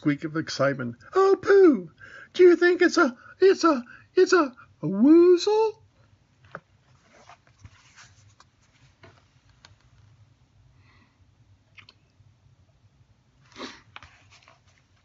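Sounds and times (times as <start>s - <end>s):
book handling clicks and rustles: 13.9s - 15.0s.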